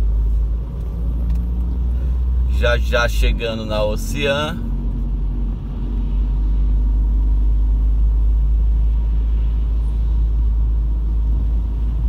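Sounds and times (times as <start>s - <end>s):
car driving on wet road: 0.0s - 12.0s.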